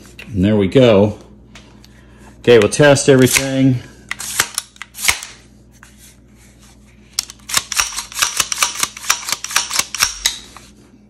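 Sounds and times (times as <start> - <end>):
rifle action clicking and snapping: 7.2 - 10.4.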